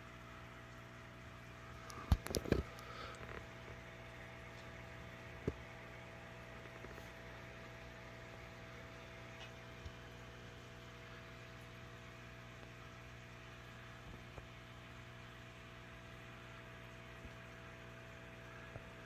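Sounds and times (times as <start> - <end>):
electrical hum: 0.0 - 19.0.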